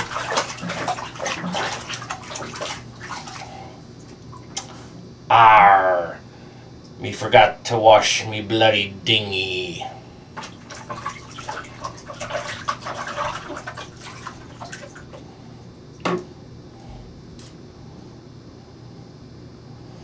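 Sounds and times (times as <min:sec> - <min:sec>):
water splashing in bathtub: 0:00.0 - 0:04.8, 0:10.3 - 0:15.2
faint low hum: 0:00.0 - 0:20.0.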